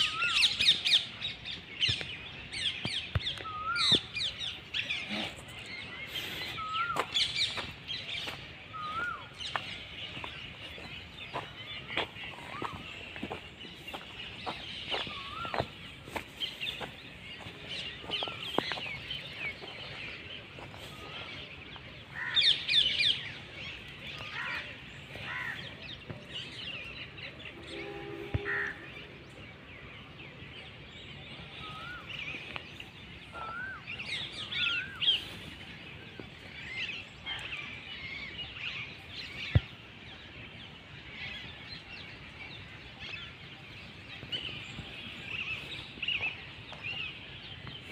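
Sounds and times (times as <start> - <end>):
birds chirping: 0.0 - 47.9.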